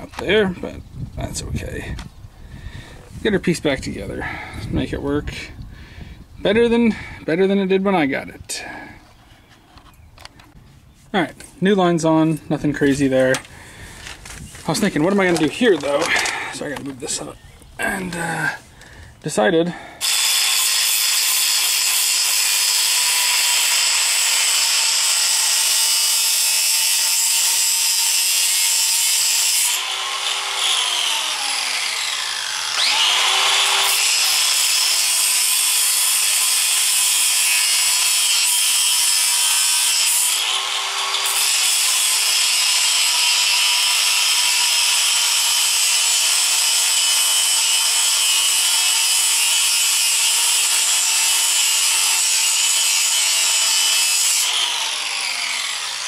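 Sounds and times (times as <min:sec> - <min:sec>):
angle grinder grinding steel: 0:12.1 - 0:18.9, 0:19.7 - 0:56.0.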